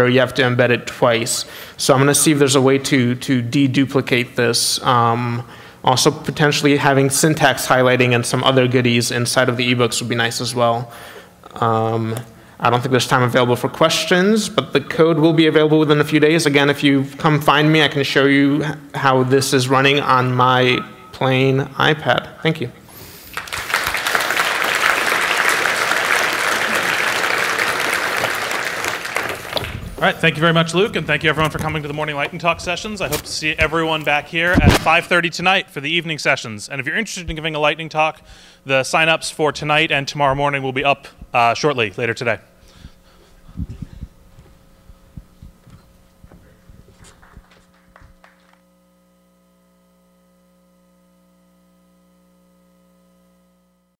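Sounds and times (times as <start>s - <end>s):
steady electrical hum: 0.0s - 53.9s
audience applauding: 23.2s - 30.5s, 47.1s - 48.6s.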